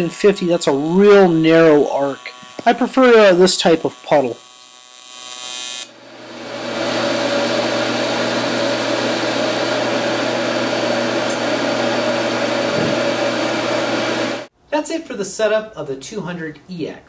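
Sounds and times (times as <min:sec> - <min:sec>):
welding arc buzz: 0:00.0 - 0:14.5.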